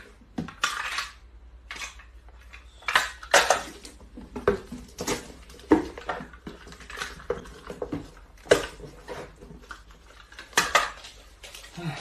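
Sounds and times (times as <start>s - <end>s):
cardboard boxes handled: 3.8s - 10.2s.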